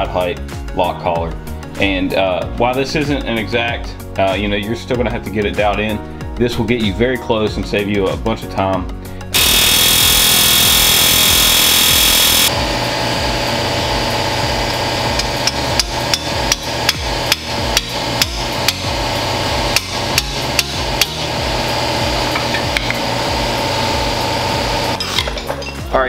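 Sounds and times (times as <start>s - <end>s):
pneumatic air hammer rattling: 9.4s - 12.5s, 14.0s - 25.8s
steady mechanical hum: 9.4s - 25.3s
hammer striking metal: 15.1s - 19.0s, 19.6s - 21.4s, 22.3s - 23.1s.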